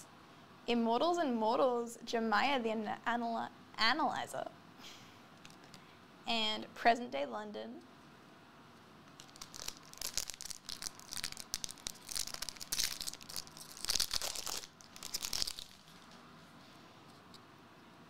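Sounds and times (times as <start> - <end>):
wrapper crinkling and tearing: 9.2 - 16.2.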